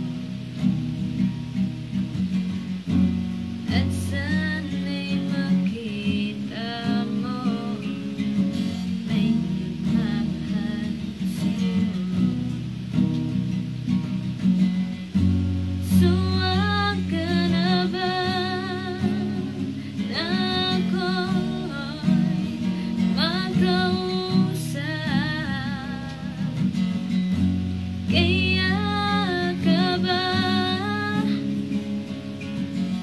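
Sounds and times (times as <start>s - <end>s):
strummed acoustic guitar: 0.0s - 33.0s
woman singing: 3.6s - 12.6s, 15.8s - 32.0s.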